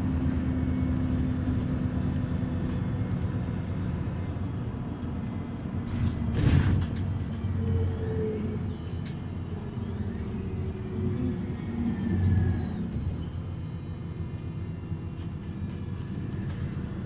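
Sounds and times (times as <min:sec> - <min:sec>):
bus diesel idling rumble: 0:00.0 - 0:17.0.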